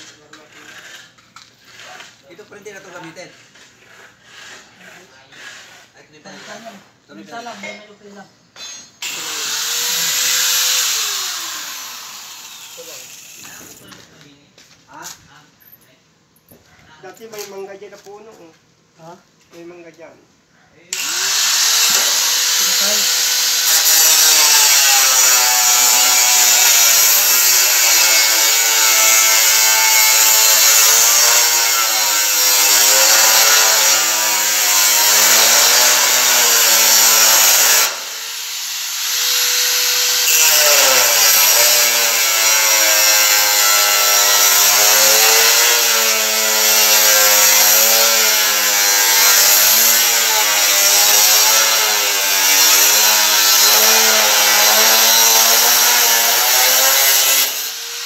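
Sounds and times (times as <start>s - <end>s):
angle grinder cutting metal: 8.6s - 14.0s, 21.0s - 58.0s.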